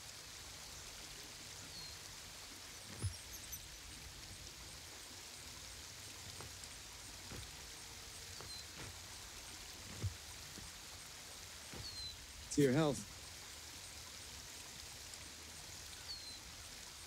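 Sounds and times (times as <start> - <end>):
soft rushing hiss: 0.0 - 17.0
faint high chirps: 1.6 - 4.8
soft low thumps: 2.8 - 4.9, 5.7 - 12.5.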